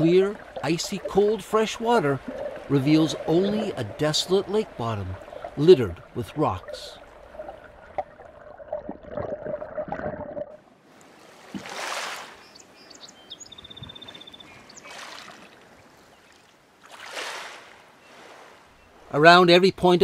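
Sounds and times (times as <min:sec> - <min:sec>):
muffled underwater hum: 0:00.0 - 0:08.0
water washing in swells: 0:00.0 - 0:12.6, 0:14.6 - 0:19.2.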